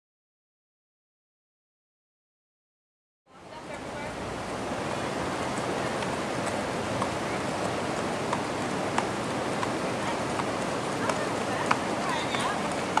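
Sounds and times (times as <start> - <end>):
hooves clopping on wet road: 3.5 - 13.0
steady rushing hiss: 3.5 - 13.0.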